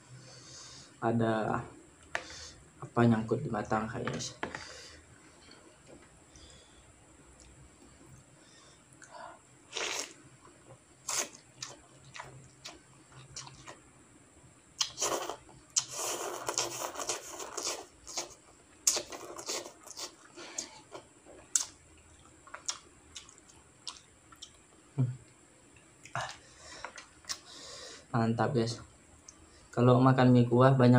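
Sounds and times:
person slurping noodles: 9.7 - 10.2, 14.8 - 20.7.

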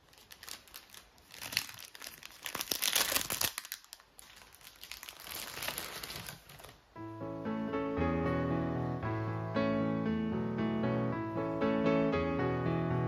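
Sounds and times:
plastic bag crinkling: 0.0 - 6.9.

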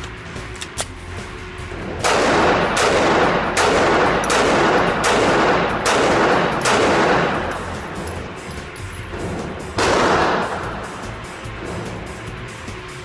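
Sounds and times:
pistol shots echoing indoors: 1.6 - 8.5, 9.1 - 11.0.

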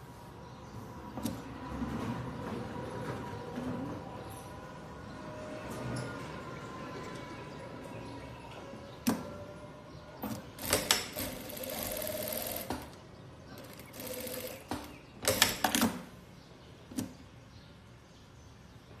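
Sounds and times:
sewing machine stitching: 10.3 - 12.9, 13.6 - 16.0.

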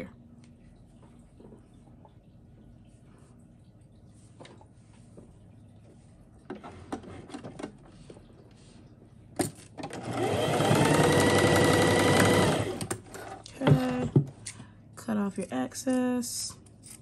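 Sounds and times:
sewing machine motor whine: 9.9 - 13.0.

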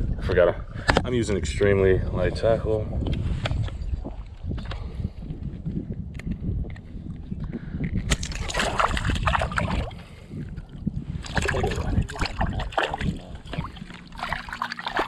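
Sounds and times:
shallow water sloshing: 8.1 - 15.0.

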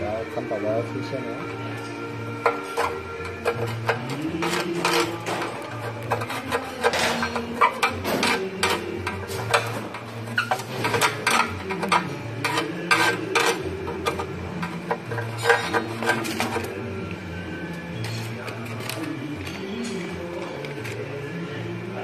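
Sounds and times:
steel tool scraping metal: 2.3 - 16.8.

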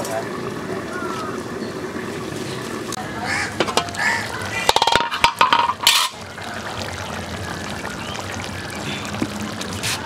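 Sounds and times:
metal spoon clinking and scraping pot: 4.7 - 6.2.

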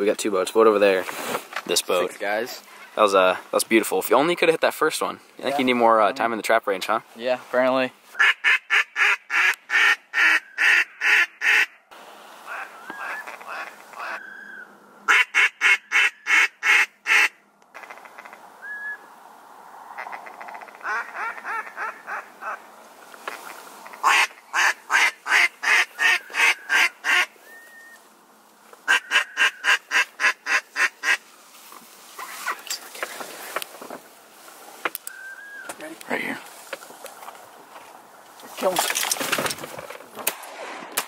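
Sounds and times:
duck call quacks: 8.2 - 11.8, 12.5 - 14.3, 15.1 - 18.4, 20.0 - 22.6, 23.3 - 27.3, 28.9 - 31.2
single whistle notes: 18.6 - 19.0.

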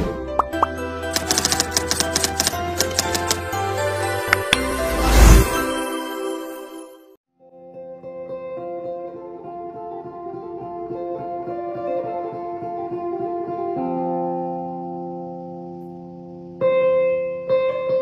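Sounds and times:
plucked guitar music: 7.7 - 18.0.

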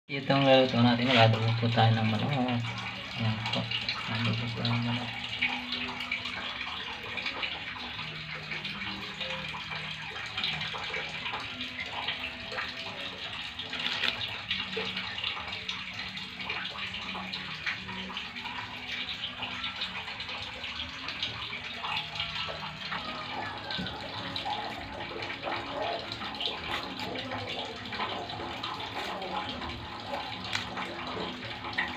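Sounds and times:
faint voices: 22.9 - 31.7.

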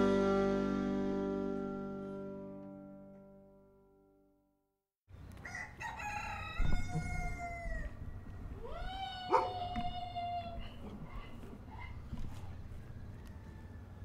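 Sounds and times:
guitar music: 0.0 - 4.3
rooster crowing: 5.4 - 10.8, 12.7 - 14.0.

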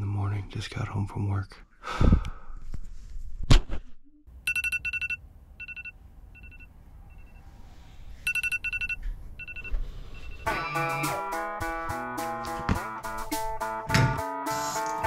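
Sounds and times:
electronic alarm beeping: 4.5 - 7.5, 8.2 - 10.9.

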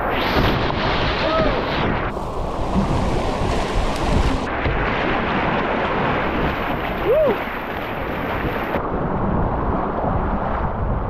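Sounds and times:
whitewater rushing: 0.0 - 8.8.

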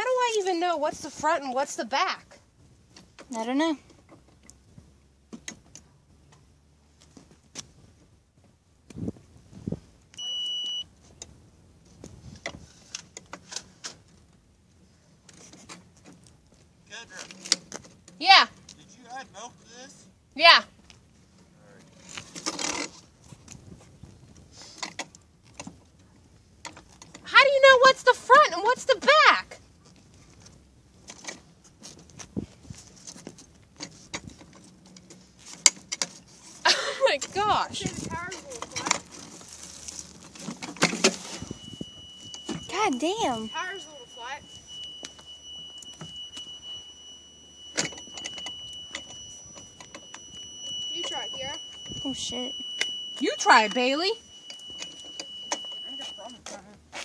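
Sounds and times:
high electronic beep: 10.2 - 10.9, 41.2 - 56.5.

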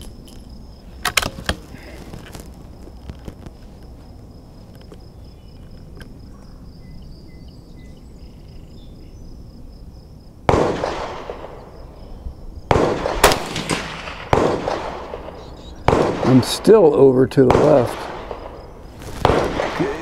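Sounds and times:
rifle shots: 10.5 - 12.0, 12.7 - 20.0.

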